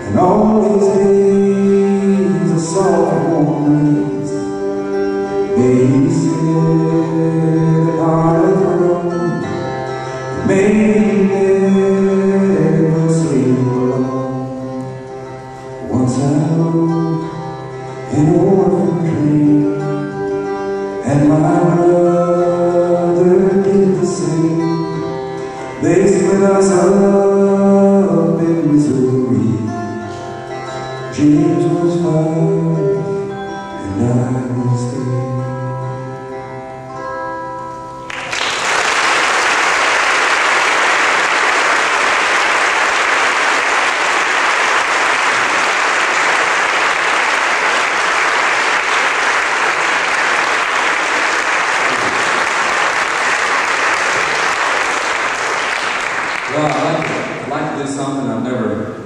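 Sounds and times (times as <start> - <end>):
audience applause: 38.1 - 57.5.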